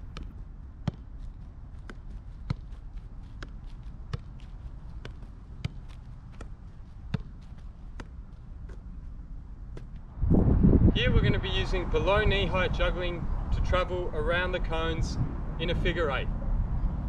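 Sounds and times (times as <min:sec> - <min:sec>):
soccer ball being juggled: 0:00.0 - 0:10.1.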